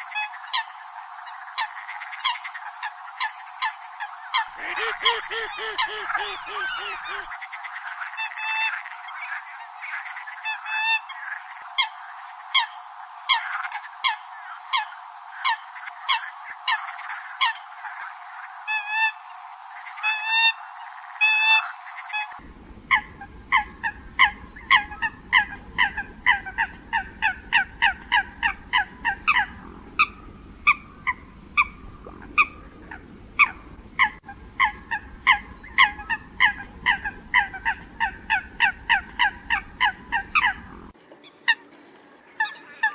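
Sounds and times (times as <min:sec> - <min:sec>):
coot calls: 0:04.3 - 0:07.4, 0:21.5 - 0:41.6.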